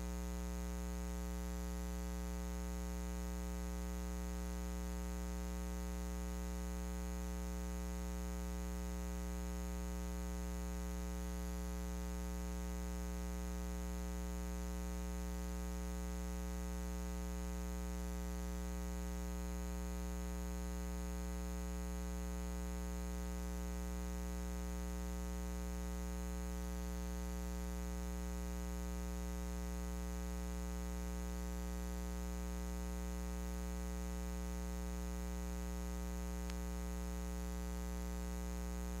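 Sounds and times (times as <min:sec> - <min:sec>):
electrical mains hum: 0:32.3 - 0:39.0.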